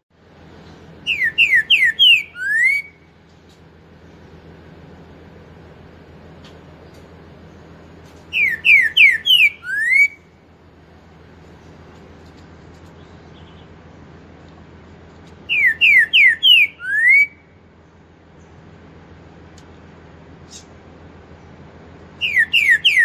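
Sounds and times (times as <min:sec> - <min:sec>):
bird singing whistled song: 0:01.0 - 0:03.1, 0:08.3 - 0:10.3, 0:15.4 - 0:17.6, 0:22.1 - 0:23.0.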